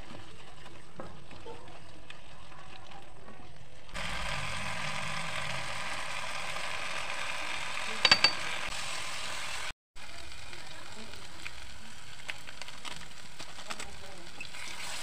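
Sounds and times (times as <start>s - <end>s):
masala sizzling in a frying pan: 4.0s - 15.0s.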